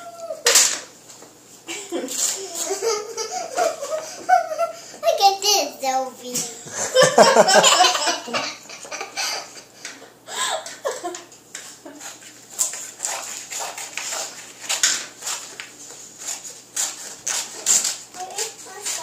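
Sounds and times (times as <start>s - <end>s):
child giggling: 1.7s - 5.2s, 6.5s - 9.7s, 10.4s - 12.1s
scissors snipping paper: 11.6s - 19.0s.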